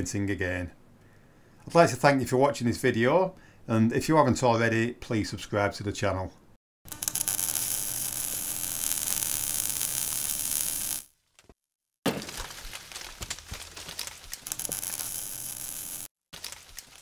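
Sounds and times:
crackling: 6.9s - 11.1s, 12.2s - 17.0s.

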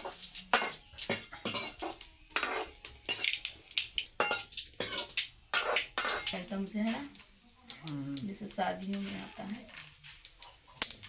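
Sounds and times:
ladle scraping a steel pan: 0.0s - 3.3s, 4.2s - 6.3s.

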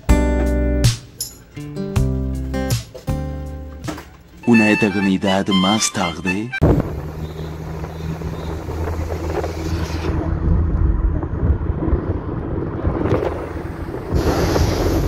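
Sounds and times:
car engine hum: 6.6s - 15.0s
road and wind noise: 6.6s - 15.0s.

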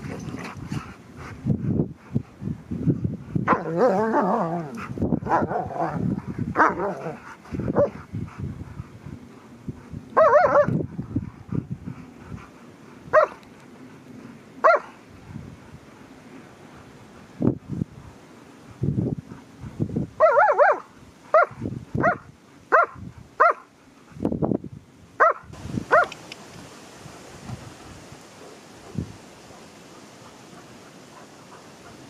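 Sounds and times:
dog barks: 10.2s - 10.8s, 13.1s - 13.4s, 14.6s - 14.9s, 20.2s - 23.7s, 25.2s - 26.1s.

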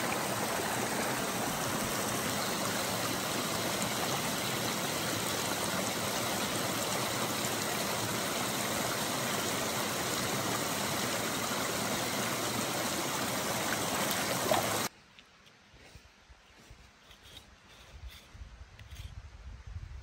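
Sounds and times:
stream water rushing: 0.0s - 14.9s.

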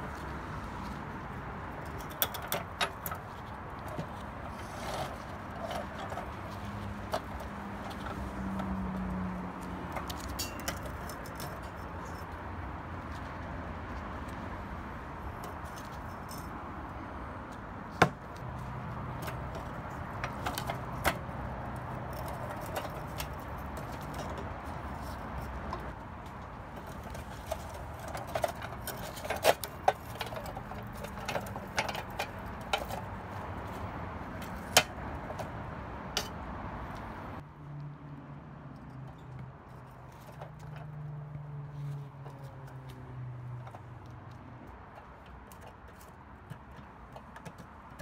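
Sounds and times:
pliers clinking on metal: 10.2s - 11.8s.

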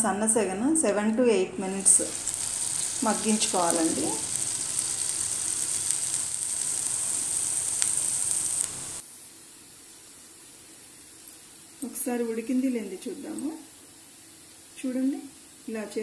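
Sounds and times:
curry sizzling in a pan: 1.7s - 9.0s.

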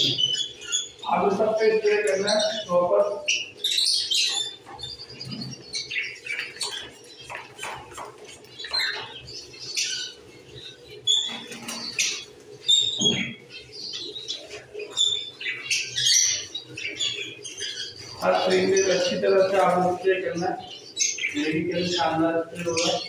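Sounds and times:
birds chirping and squawking: 0.0s - 23.0s.

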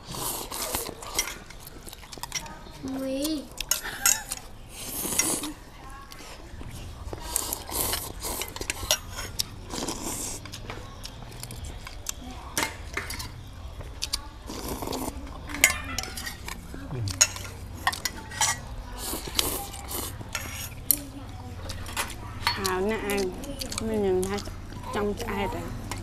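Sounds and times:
noodles slurped: 0.0s - 2.3s
chopsticks clinking on metal bowls: 0.5s - 6.4s, 7.1s - 26.0s.

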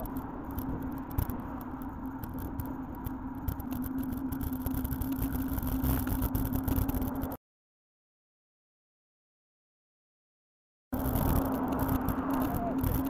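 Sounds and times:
low traffic rumble: 0.0s - 7.4s, 11.0s - 13.0s
sharp rattling clicks: 0.0s - 7.4s, 11.0s - 13.0s
steady hum: 0.0s - 7.4s, 11.0s - 13.0s
vehicle approaching from behind: 0.0s - 7.4s, 11.0s - 13.0s.

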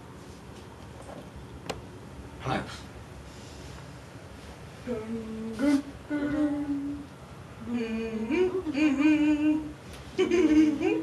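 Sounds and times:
person humming a tune: 4.9s - 11.0s.

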